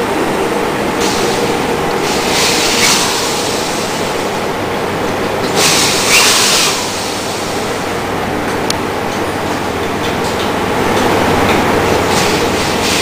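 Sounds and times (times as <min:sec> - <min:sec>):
gas hissing: 0:00.9 - 0:08.4, 0:11.4 - 0:13.0.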